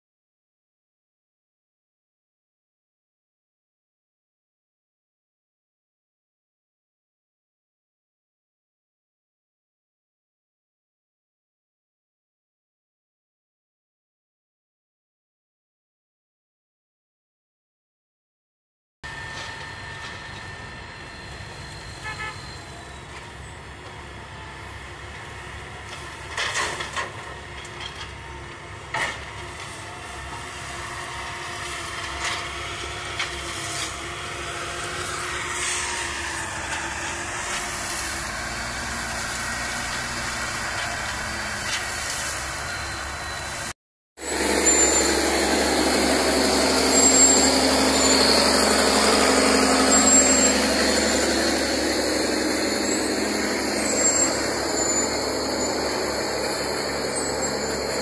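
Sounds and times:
heavy diesel trucks running: 0:19.1 - 0:58.0.

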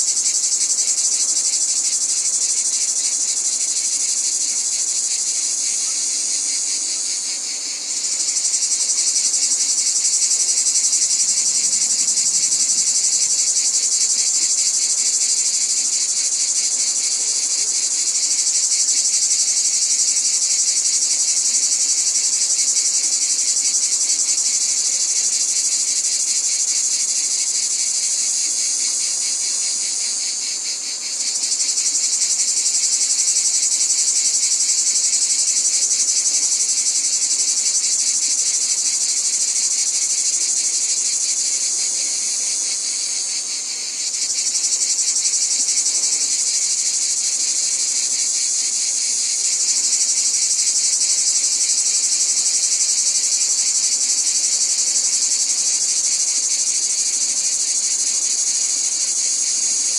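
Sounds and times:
insect chorus trilling: 0:00.0 - 0:59.9.

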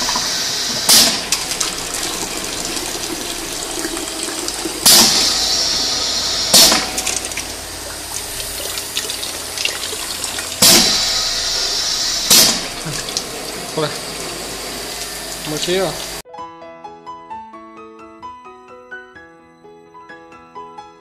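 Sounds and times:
steady hiss: 0:00.0 - 0:16.2
sharp hisses of air venting: 0:04.4 - 0:16.2.

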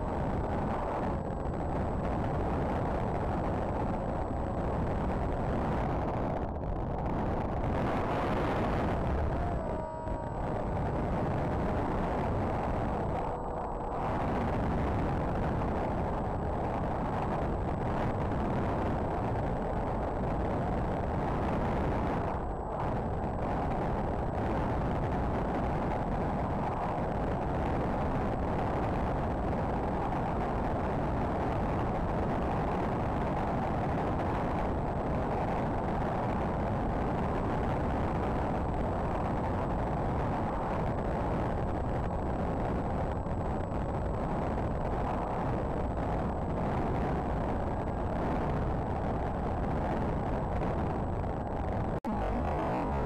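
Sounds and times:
wind rushing: 0:05.5 - 0:25.9.

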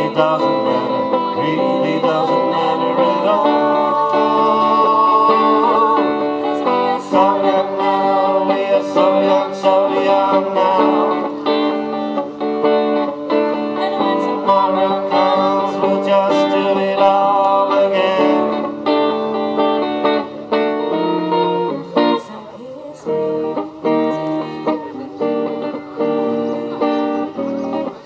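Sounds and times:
electric guitar through amplifier: 0:00.0 - 0:28.0
woman singing: 0:02.0 - 0:11.2, 0:13.6 - 0:16.4, 0:22.2 - 0:25.3.

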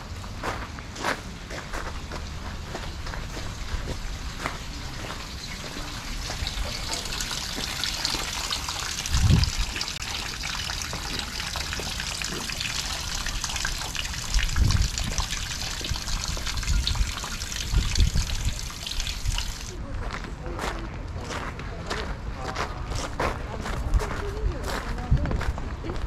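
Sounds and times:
low rumbles: 0:00.0 - 0:20.6
trickling running water: 0:01.9 - 0:19.8.

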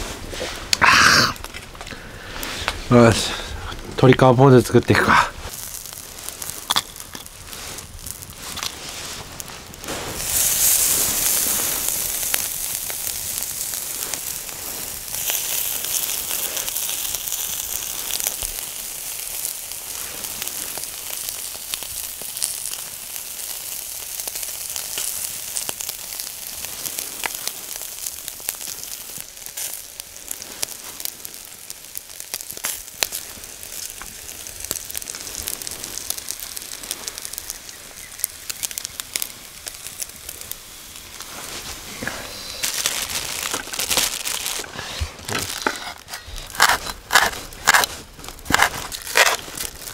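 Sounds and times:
chicken skin sizzling on a grill: 0:00.0 - 0:49.9
fat popping: 0:05.5 - 0:08.8, 0:42.0 - 0:49.9.

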